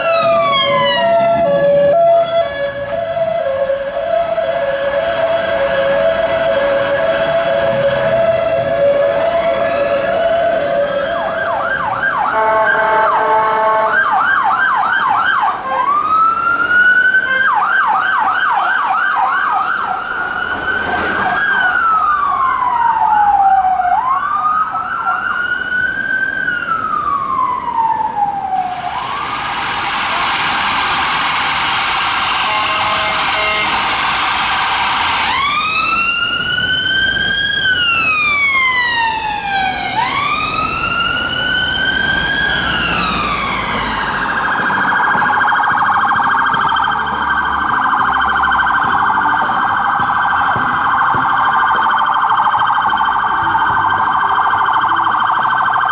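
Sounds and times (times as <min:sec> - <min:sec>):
ambulance siren wailing: 0:00.0 - 0:55.9
police sirens yelping and wailing: 0:00.0 - 0:55.9
steady traffic noise: 0:00.0 - 0:55.9.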